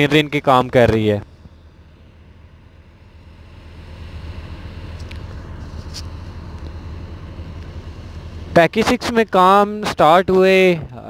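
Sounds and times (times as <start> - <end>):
earthmoving machinery engine rumble: 0.0 - 11.0.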